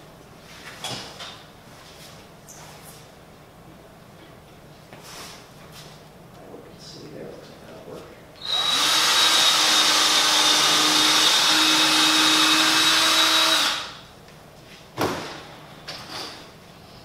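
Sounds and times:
cordless drill driving screw into wood: 0:08.4 - 0:14.0.

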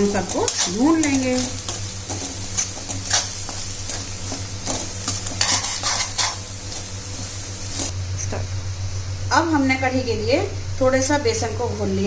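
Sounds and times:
metal spoon scraping a pan: 0:00.0 - 0:07.9
food sizzling in oil: 0:00.0 - 0:09.2.

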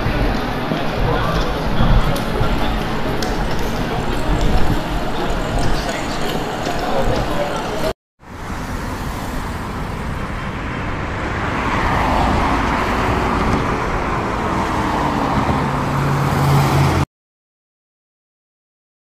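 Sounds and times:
cars going by: 0:00.0 - 0:17.1.

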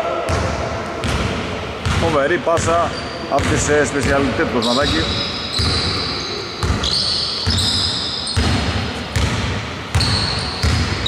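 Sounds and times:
basketball bouncing on wooden floor: 0:00.3 - 0:02.8, 0:03.4 - 0:04.3, 0:05.6 - 0:05.9, 0:06.6 - 0:11.0
short high squeaks: 0:04.6 - 0:08.5.

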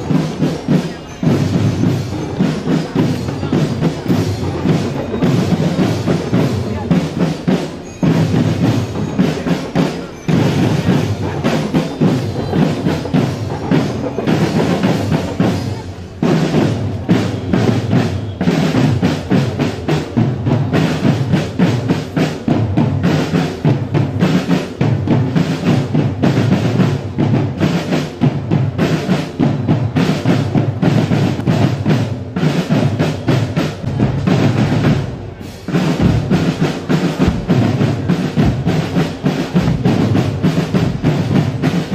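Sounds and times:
snare drums: 0:00.0 - 0:41.9
bass drums: 0:28.2 - 0:41.9.

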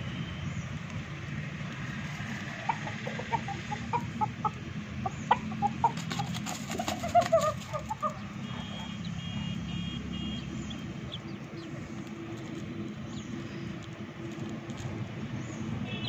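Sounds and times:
small birds chirping: 0:00.0 - 0:16.0
chicken clucking: 0:02.4 - 0:09.0.

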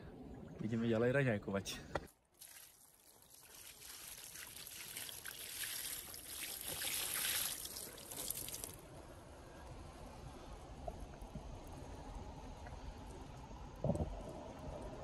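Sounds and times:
liquid pouring: 0:02.4 - 0:08.8.

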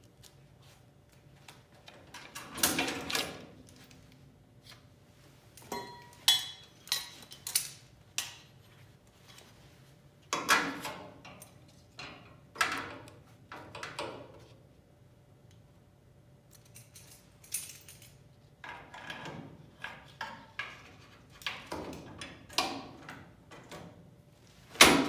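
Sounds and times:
metal parts clinking and scraping: 0:05.6 - 0:08.4.

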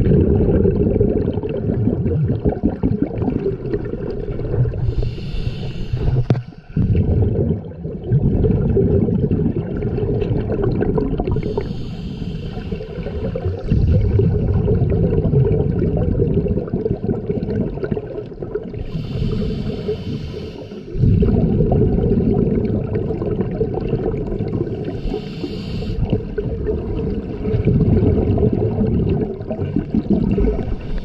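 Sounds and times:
exhaled bubbles rumbling: 0:00.0 - 0:31.0
hissing inhale through regulator: 0:04.7 - 0:06.9, 0:11.3 - 0:14.2, 0:18.8 - 0:21.3, 0:24.7 - 0:26.4, 0:30.6 - 0:31.0.

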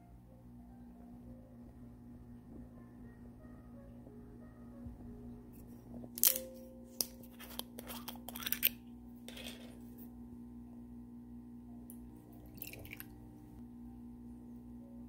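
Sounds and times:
steady low hum: 0:00.0 - 0:15.0
liquid pouring into glass: 0:12.4 - 0:13.1.

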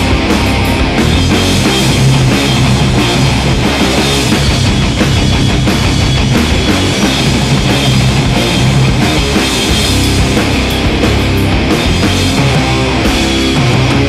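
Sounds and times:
rock music with drums and guitar: 0:00.0 - 0:14.0.

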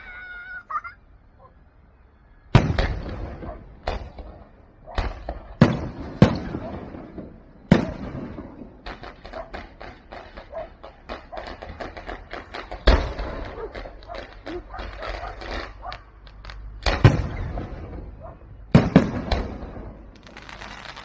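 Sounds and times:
firework pops and crackles: 0:02.6 - 0:21.0
firework shells bursting: 0:05.0 - 0:21.0.

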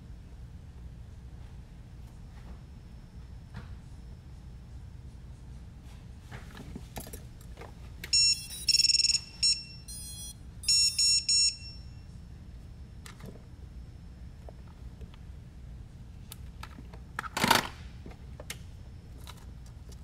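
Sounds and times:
quadcopter power-up beeps: 0:08.2 - 0:11.7.

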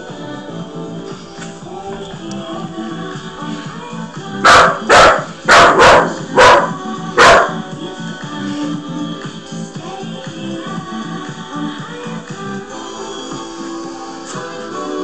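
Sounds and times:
background music: 0:00.0 - 0:15.0
puppy barking: 0:04.4 - 0:07.6.

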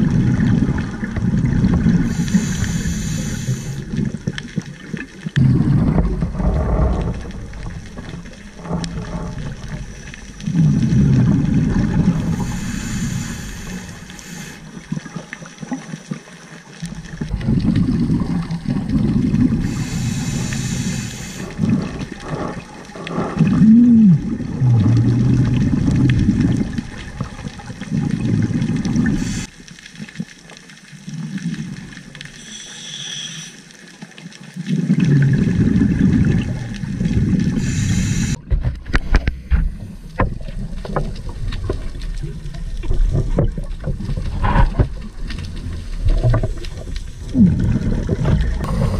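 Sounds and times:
exhaled bubbles underwater: 0:00.0 - 0:33.5, 0:34.2 - 0:48.9
regulator hissing inhales: 0:02.1 - 0:03.8, 0:12.3 - 0:14.7, 0:19.6 - 0:21.6, 0:32.4 - 0:33.6, 0:37.6 - 0:38.4.

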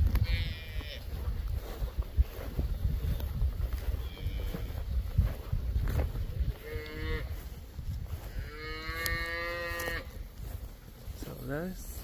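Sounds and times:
cattle mooing: 0:06.6 - 0:07.3, 0:08.4 - 0:10.1.

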